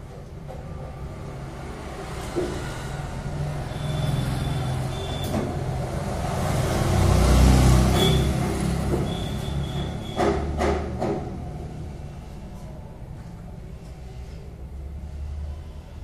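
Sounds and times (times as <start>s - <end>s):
vehicle engine passing: 0.7s - 10.0s
sharp knocks: 9.8s - 11.5s.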